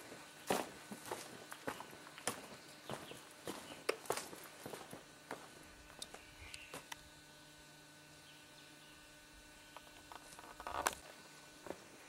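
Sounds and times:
footsteps crunching on gravel: 0:00.0 - 0:06.9, 0:10.0 - 0:12.0
faint steady hum: 0:00.0 - 0:12.0.

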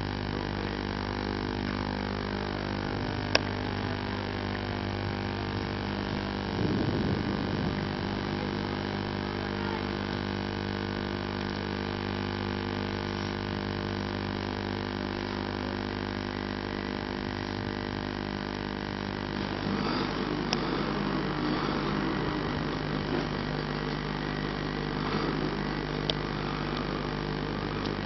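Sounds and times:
car engine drone: 0:00.0 - 0:28.0
rough rushing noise: 0:06.4 - 0:08.8, 0:19.1 - 0:28.0.

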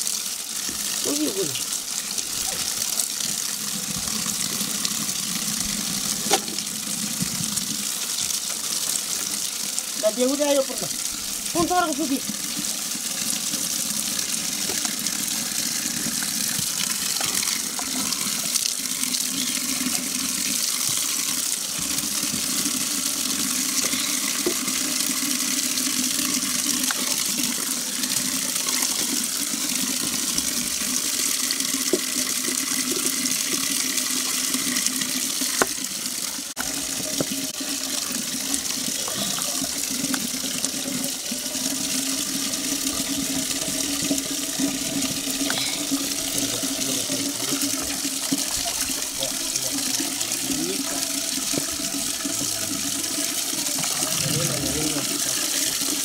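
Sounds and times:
tap water splashing into pot: 0:06.1 - 0:08.4, 0:14.5 - 0:22.8, 0:26.2 - 0:30.8, 0:31.6 - 0:33.7, 0:34.6 - 0:41.4, 0:42.2 - 0:54.2.

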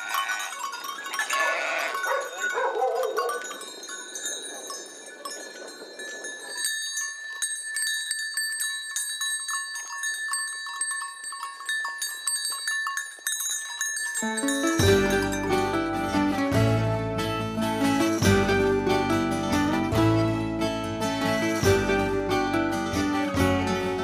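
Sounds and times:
small bells ringing: 0:00.0 - 0:16.8
sheep bleating: 0:01.2 - 0:02.1.

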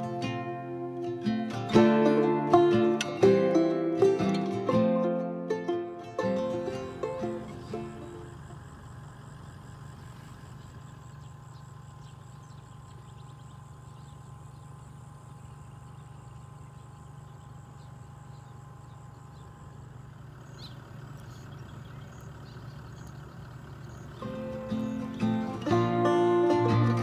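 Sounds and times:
low hum: 0:00.0 - 0:27.0
high insect trill: 0:06.1 - 0:27.0
short chirping calls: 0:09.8 - 0:25.7.

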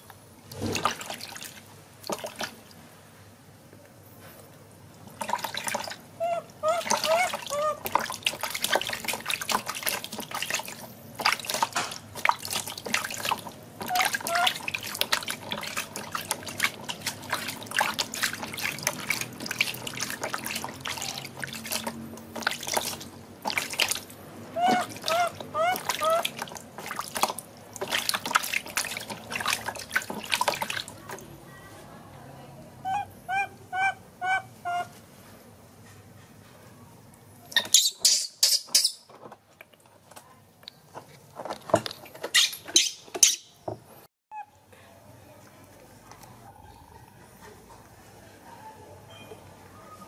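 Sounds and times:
water splashing in a plastic tub: 0:00.0 - 0:03.0, 0:04.8 - 0:31.5.

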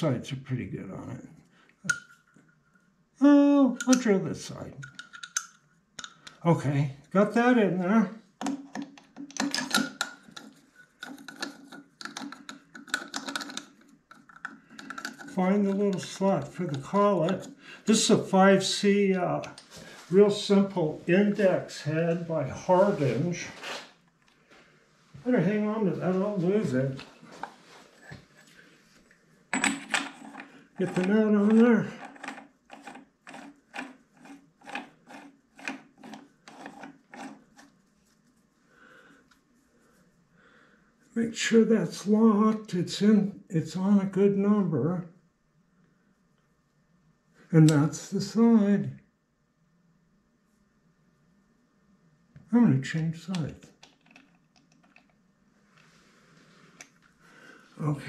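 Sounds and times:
metal clicks taps and scrapes: 0:01.8 - 0:02.5, 0:03.8 - 0:04.1, 0:04.8 - 0:06.4, 0:08.4 - 0:17.6, 0:29.6 - 0:37.7, 0:53.3 - 0:55.2
nut threads rasping: 0:08.4 - 0:18.0, 0:29.5 - 0:37.7.

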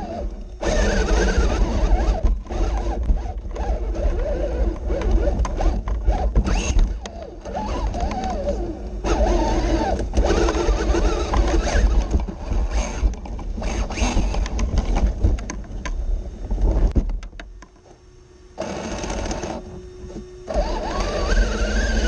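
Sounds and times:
toy truck motor whining: 0:00.0 - 0:14.9, 0:20.4 - 0:22.0.

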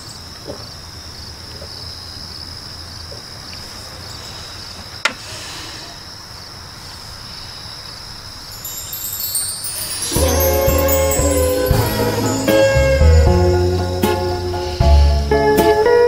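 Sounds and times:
faint regular chirping: 0:07.0 - 0:13.8.

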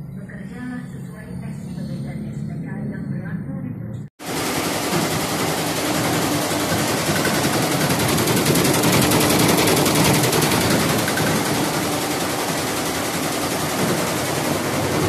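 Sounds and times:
embroidery machine clattering: 0:04.2 - 0:15.0.

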